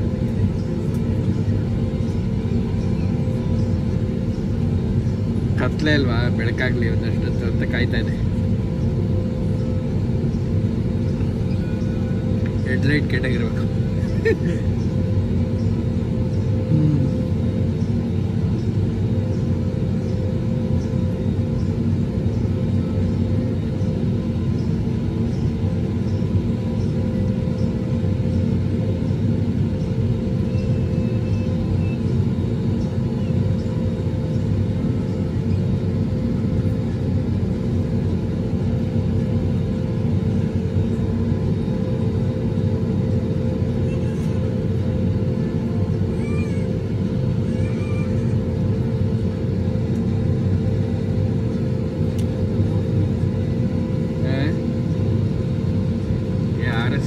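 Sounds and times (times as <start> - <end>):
aircraft cabin engine hum: 0.0 - 57.0.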